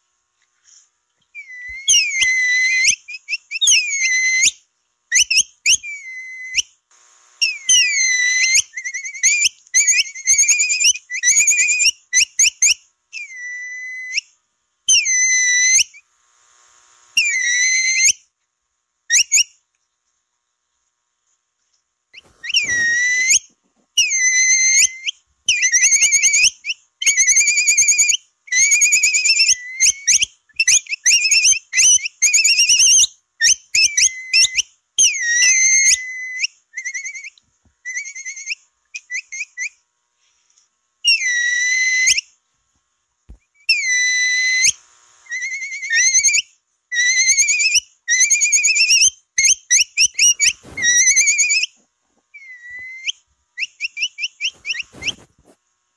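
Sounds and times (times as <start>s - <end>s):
high-pitched whistled chirps: 1.3s - 4.6s, 7.4s - 14.3s, 22.4s - 39.8s, 43.6s - 51.7s, 52.4s - 55.3s
long held whistles: 1.3s - 6.8s, 7.4s - 16.1s, 17.2s - 18.2s, 22.4s - 39.8s, 41.0s - 42.4s, 43.6s - 51.7s, 52.3s - 55.3s.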